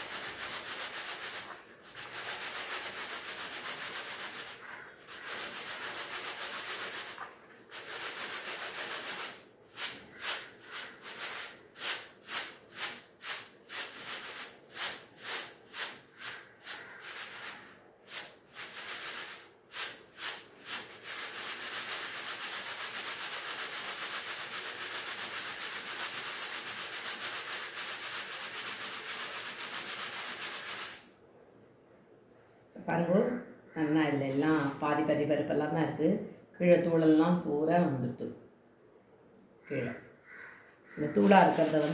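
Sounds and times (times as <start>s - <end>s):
lentils rustling in plastic sieve: 0.0s - 31.0s, 41.1s - 41.9s.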